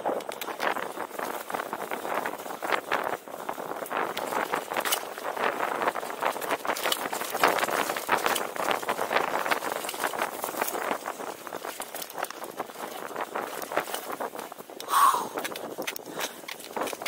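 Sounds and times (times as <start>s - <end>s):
bike rattling clicks and knocks: 0.0s - 17.0s
tyres running on dirt: 0.0s - 17.0s.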